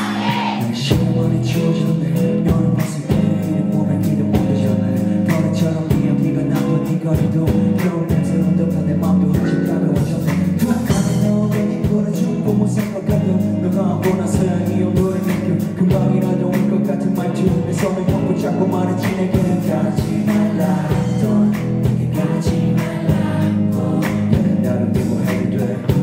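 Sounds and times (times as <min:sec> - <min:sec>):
electric bass: 0:00.0 - 0:26.0
electric guitars: 0:00.0 - 0:26.0
drum beat: 0:17.4 - 0:26.0.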